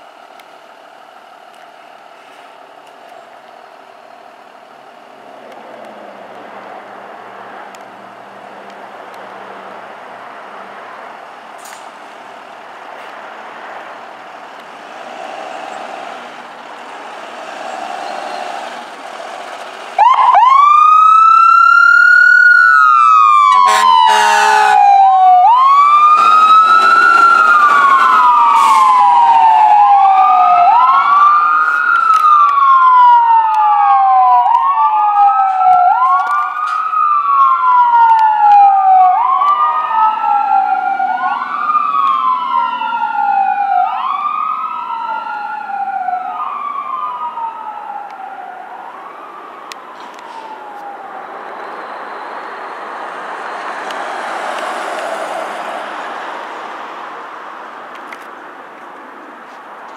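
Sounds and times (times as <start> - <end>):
siren wailing: 17.1 - 54.9
air horn blast: 23.5 - 24.8, 26.2 - 29.0.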